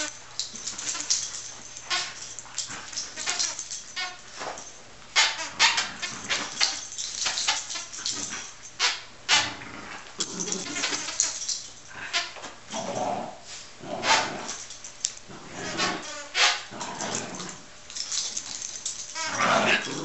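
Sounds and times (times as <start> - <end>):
small dogs yipping and barking: 0.0 - 9.5, 18.0 - 20.0.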